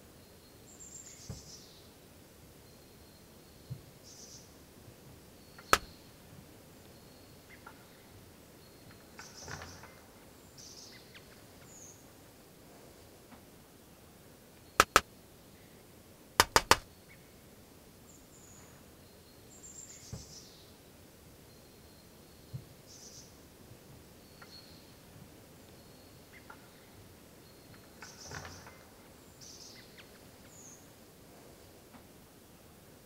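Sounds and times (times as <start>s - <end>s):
sharp taps: 14.8s - 15.0s, 16.4s - 16.8s.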